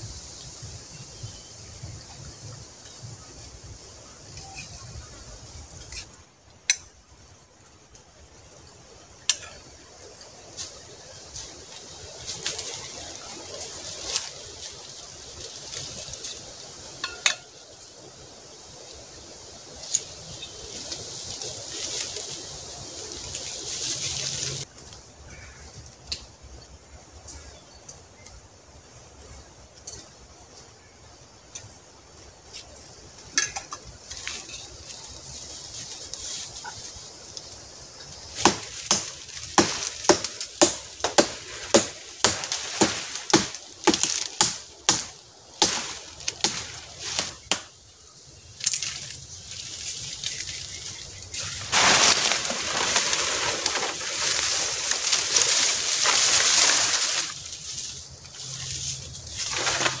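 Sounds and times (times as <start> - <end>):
rustling in dry leaves: 0.0 - 60.0
crunching in dry leaves: 7.1 - 25.6, 33.8 - 60.0.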